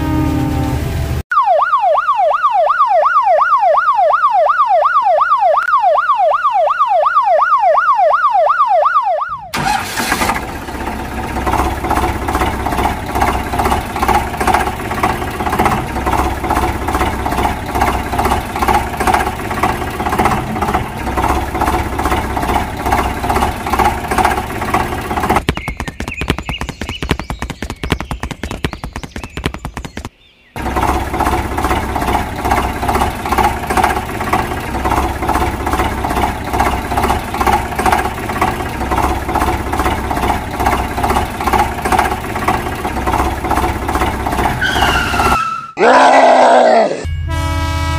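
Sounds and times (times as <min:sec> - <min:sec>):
fast engine rattle: 0:09.5 - 0:45.5
tractor engine chugging: 0:09.5 - 0:45.8.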